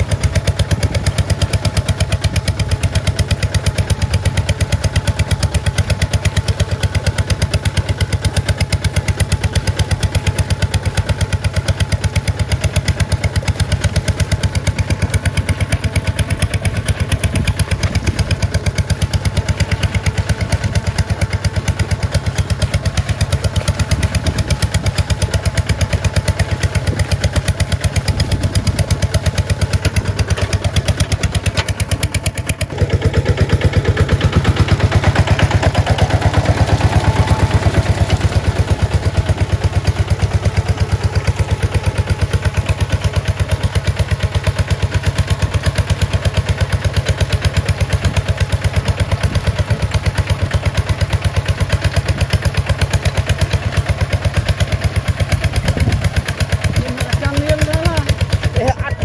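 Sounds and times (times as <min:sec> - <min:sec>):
diesel engine chugging: 0:00.0 - 0:59.0.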